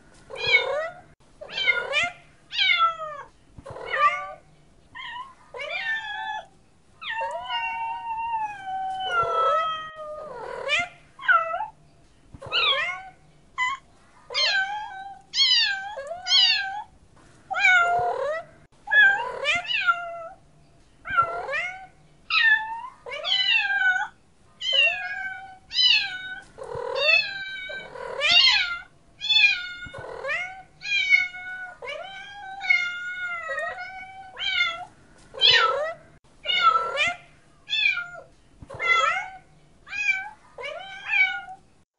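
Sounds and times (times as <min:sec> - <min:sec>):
cat meowing: 0:00.3 - 0:04.4, 0:05.0 - 0:11.8, 0:12.4 - 0:16.9, 0:17.5 - 0:20.4, 0:21.1 - 0:41.6.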